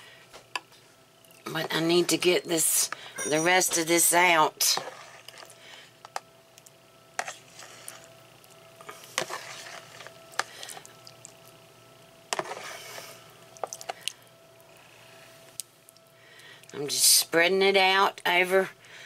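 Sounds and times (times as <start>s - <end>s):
metal spoon scraping plastic bowl: 9.2s - 10.1s, 12.4s - 13.1s.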